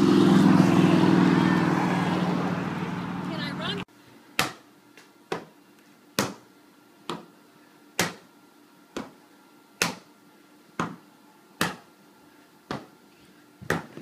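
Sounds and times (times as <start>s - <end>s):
ball smacks: 11.6s - 11.8s.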